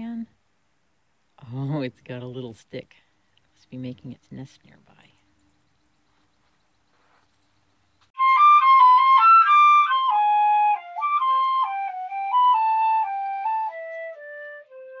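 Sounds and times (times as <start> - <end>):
solo flute tune: 8.2 - 15.0.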